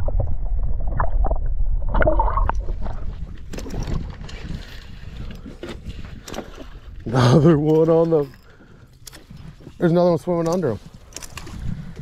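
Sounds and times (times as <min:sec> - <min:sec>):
water splashing: 0:00.0 - 0:06.8
underwater rumble and gurgling: 0:00.0 - 0:07.2.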